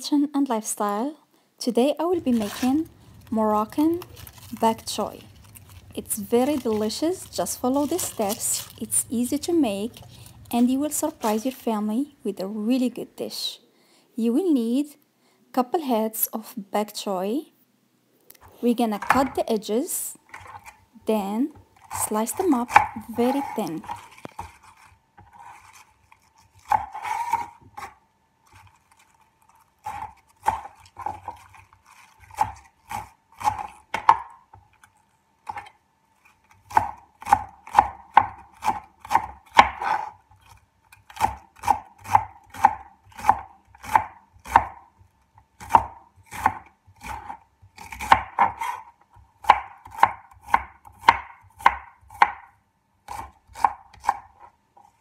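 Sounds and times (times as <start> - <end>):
knife cutting on wooden board: 21.8 - 29.2, 29.8 - 34.2, 35.5 - 44.8, 45.6 - 52.4.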